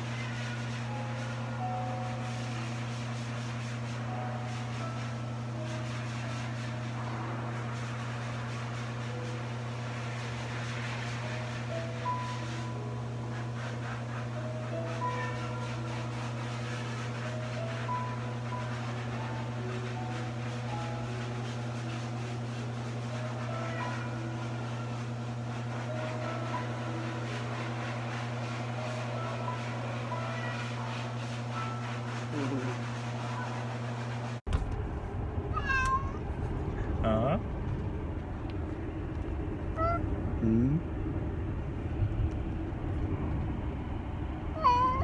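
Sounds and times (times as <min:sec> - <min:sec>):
low machine hum: 0:00.0 - 0:45.0
car cabin road rumble: 0:34.5 - 0:45.0
cat chirp: 0:35.5 - 0:36.2, 0:39.7 - 0:40.0, 0:44.6 - 0:45.0.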